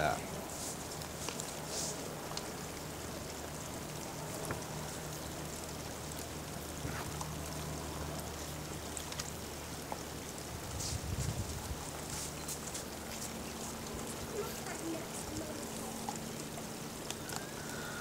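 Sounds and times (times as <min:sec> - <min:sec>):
background hiss: 0:00.0 - 0:18.0
faint clicks: 0:16.0 - 0:18.0.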